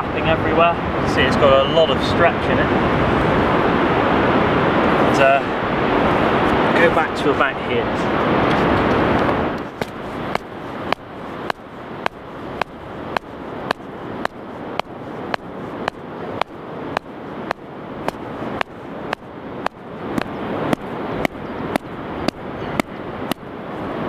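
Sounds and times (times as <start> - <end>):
stone knocking stake into sand: 9.8 - 23.4.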